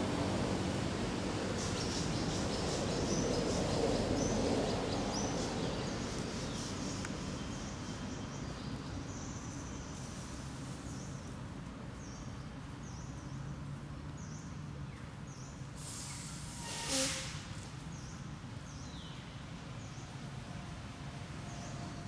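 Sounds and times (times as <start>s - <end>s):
low background noise: 0.0s - 22.0s
brief high hiss: 15.8s - 17.7s.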